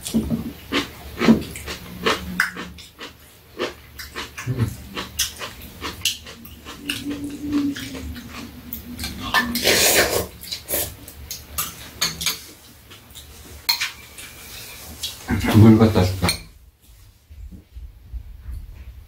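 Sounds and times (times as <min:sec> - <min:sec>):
loud noodle slurp: 0:09.6 - 0:11.0.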